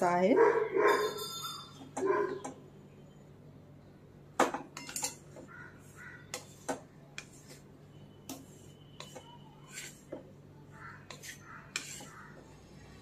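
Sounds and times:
spatula clanking against pan: 4.4 - 5.5, 8.3 - 10.3
spatula scraping pan: 4.8 - 12.6.

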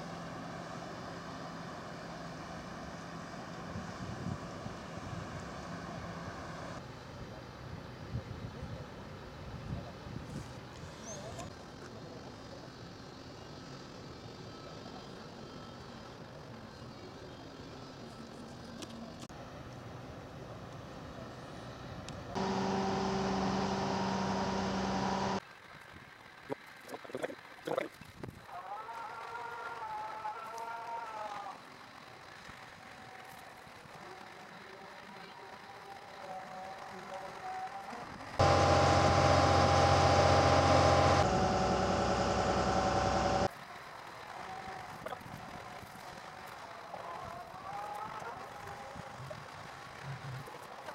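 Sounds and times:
crane engine running: 0.0 - 7.1, 19.4 - 26.4, 33.6 - 45.1
high whine: 22.4 - 25.4, 38.4 - 43.5
steady fixed-pitch hum: 22.4 - 25.4.

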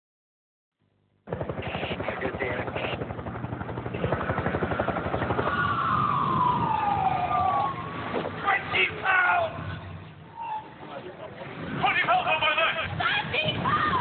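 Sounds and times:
helicopter rotor chopping: 1.2 - 10.0
siren wailing: 4.3 - 8.7, 9.5 - 10.9.

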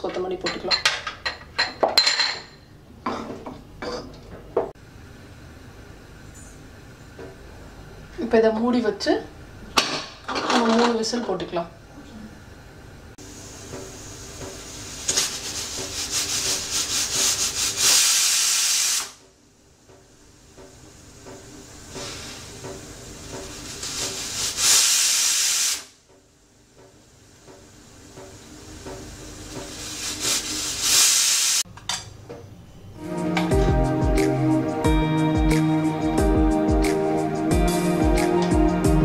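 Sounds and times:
pressure cooker whistling: 17.8 - 19.2, 24.5 - 25.9.

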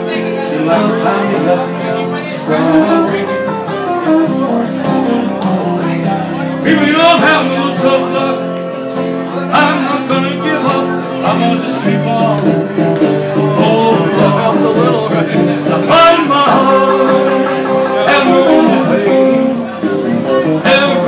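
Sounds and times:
acoustic guitar: 0.0 - 21.0
man singing: 0.0 - 21.0.

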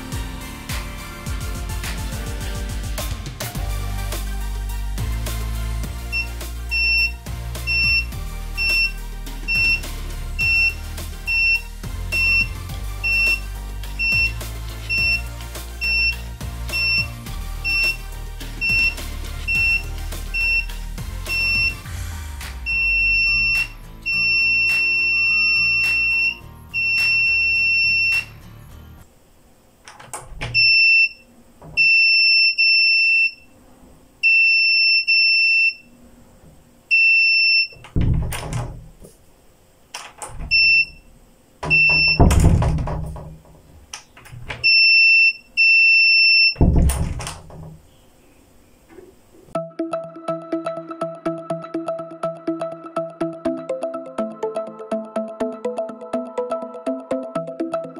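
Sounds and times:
piezo buzzer beeping: 5.9 - 29.0, 30.2 - 33.5, 34.2 - 35.9, 36.9 - 38.8, 40.3 - 43.1, 44.6 - 47.4
loud knocks and thuds: 37.9 - 39.0, 41.6 - 44.5, 46.6 - 47.9.

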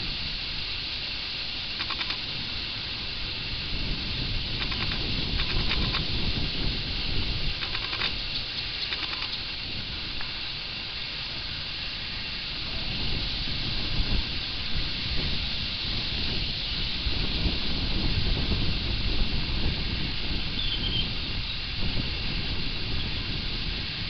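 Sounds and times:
constant hiss: 0.0 - 24.0
wind rumble on microphone: 0.0 - 24.0
small bird chirp: 20.6 - 21.1.

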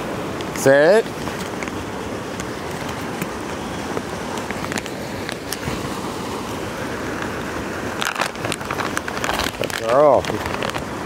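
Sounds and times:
creek rushing: 0.0 - 11.0
faint clicks and rustles: 1.1 - 5.7, 8.0 - 10.9.

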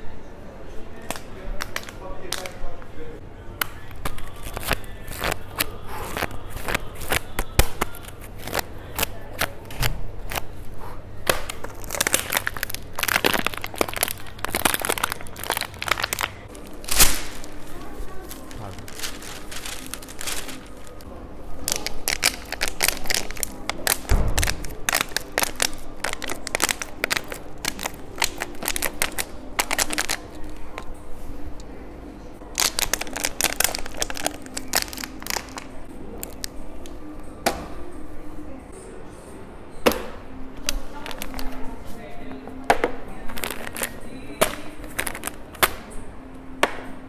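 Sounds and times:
plastic bottle crackling: 3.9 - 9.6, 11.3 - 30.8, 32.5 - 36.5, 40.6 - 41.6, 42.7 - 45.9
newspaper crinkling: 4.0 - 9.6, 11.5 - 30.6, 32.6 - 36.5, 43.3 - 45.5.

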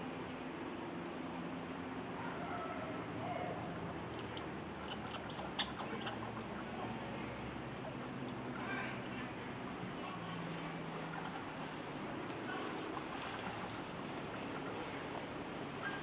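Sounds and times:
high-pitched animal chip calls: 4.1 - 8.4.

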